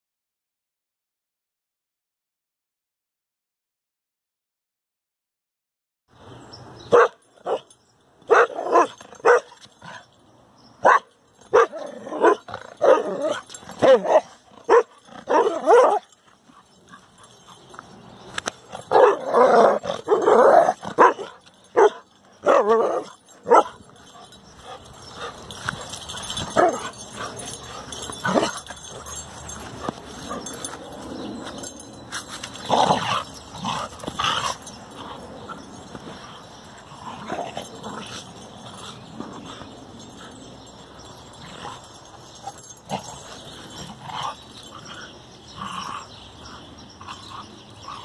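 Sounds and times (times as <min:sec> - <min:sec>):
dog barking and yipping: 0:06.9 - 0:07.7, 0:08.3 - 0:10.0, 0:10.8 - 0:17.5, 0:18.6 - 0:30.8.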